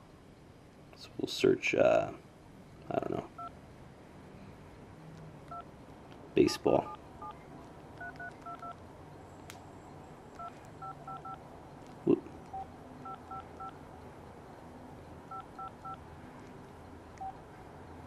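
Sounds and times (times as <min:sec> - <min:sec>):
phone keypad beeps: 0:08.0 - 0:08.8, 0:10.4 - 0:11.4, 0:12.5 - 0:13.8, 0:15.3 - 0:16.0, 0:17.2 - 0:17.4.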